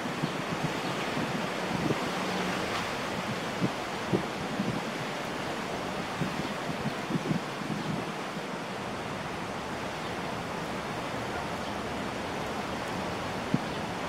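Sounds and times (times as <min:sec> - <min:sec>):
outdoor background hiss: 0:00.0 - 0:14.0.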